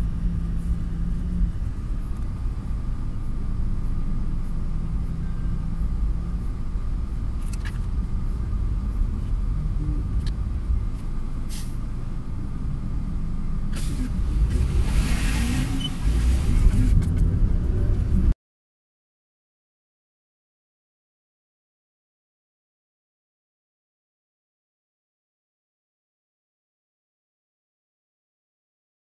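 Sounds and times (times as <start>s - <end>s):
engine and road rumble in car: 0.0s - 18.4s
hiss: 11.5s - 11.8s.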